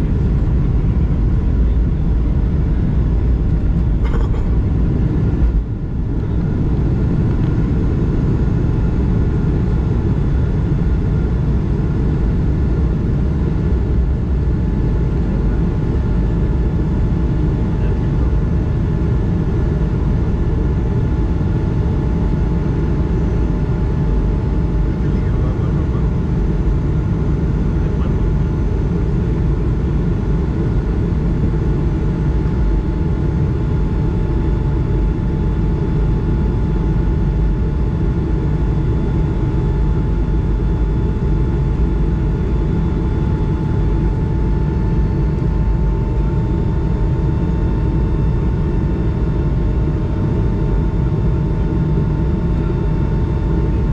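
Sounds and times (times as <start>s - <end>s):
jet engine whining: 0.0s - 14.0s, 21.8s - 53.9s
low rumble of aircraft cabin: 0.0s - 53.9s.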